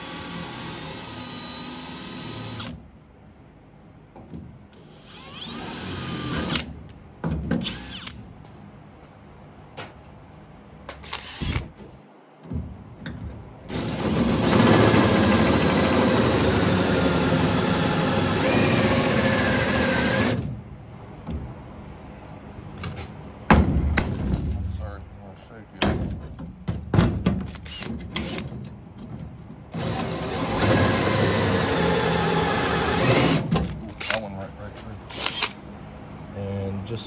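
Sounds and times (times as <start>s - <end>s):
drill cutting metal: 0.0s - 2.7s, 4.8s - 6.7s, 7.6s - 8.1s, 11.1s - 11.6s, 13.7s - 20.4s, 29.8s - 33.4s, 35.1s - 35.5s.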